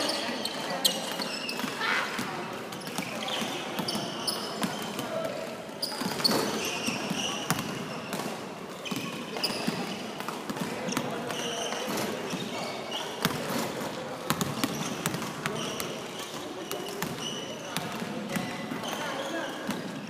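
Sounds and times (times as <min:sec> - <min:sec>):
players' voices: 0:00.0 - 0:20.0
sneaker squeaks: 0:00.0 - 0:20.0
basketballs bouncing on hardwood: 0:14.3 - 0:15.9.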